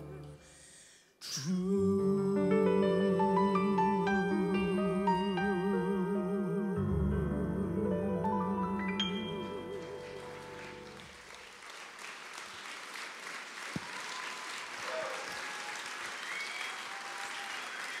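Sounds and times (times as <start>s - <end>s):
held music chord: 1.8s - 11.0s
audience applauding: 9.8s - 18.0s.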